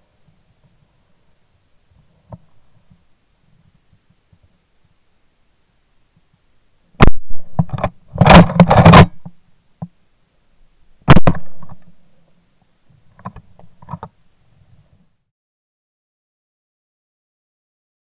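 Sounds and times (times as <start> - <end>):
clatter: 7.6 - 9.2
suppressed shotgun shots: 11.1 - 11.8.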